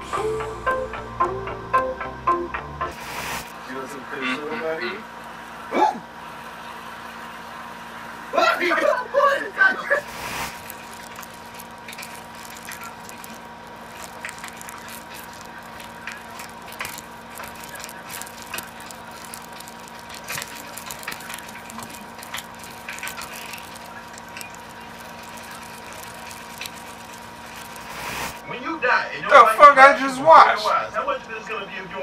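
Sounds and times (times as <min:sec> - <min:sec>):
steady electrical hum: 0:09.2 - 0:29.7
light clicking and crackling: 0:10.3 - 0:28.4.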